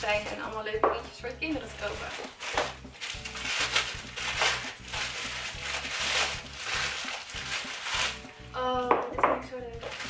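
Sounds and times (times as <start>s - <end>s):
quiet background music: 0.0s - 10.0s
wrapping paper crinkling: 1.6s - 8.4s, 9.8s - 10.0s.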